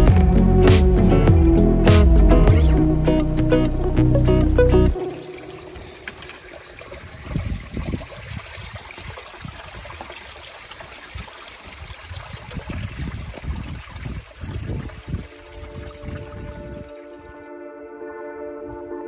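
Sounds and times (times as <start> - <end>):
stream running over rocks: 4.9 - 17.4.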